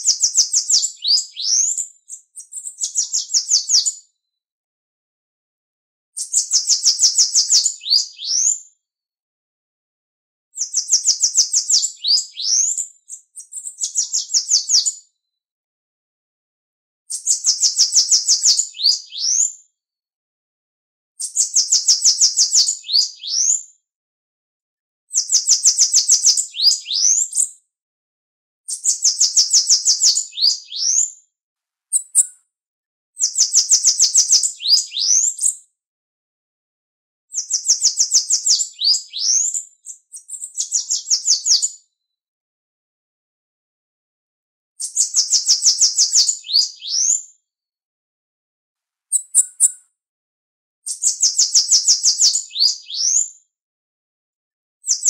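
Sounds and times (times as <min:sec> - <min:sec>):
bird singing buzzy trill: 0:00.1 - 0:03.9, 0:06.2 - 0:08.5, 0:10.6 - 0:12.8, 0:17.1 - 0:19.5, 0:21.2 - 0:23.5, 0:28.7 - 0:31.0, 0:31.9 - 0:32.3, 0:33.2 - 0:35.5, 0:37.4 - 0:41.7, 0:44.8 - 0:47.2, 0:49.1 - 0:49.8.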